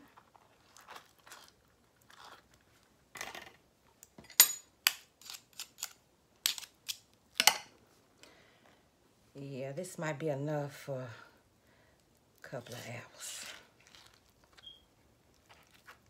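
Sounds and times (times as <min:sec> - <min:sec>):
spoon scraping avocado flesh: 0:00.1 - 0:02.6, 0:05.0 - 0:07.1, 0:12.5 - 0:16.0.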